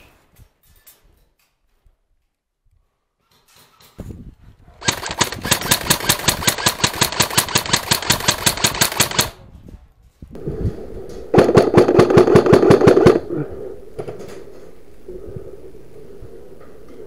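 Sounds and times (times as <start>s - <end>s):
airsoft guns full-auto bursts: 4.8s - 9.4s, 11.3s - 13.3s.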